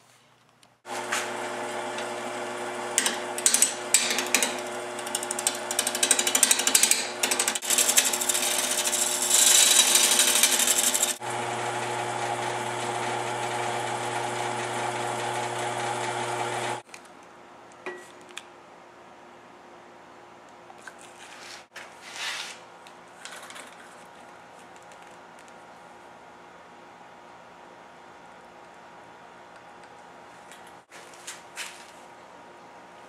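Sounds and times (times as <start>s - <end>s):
turning tool scraping wood: 0.9s - 11.2s
lathe motor hum: 0.9s - 16.8s.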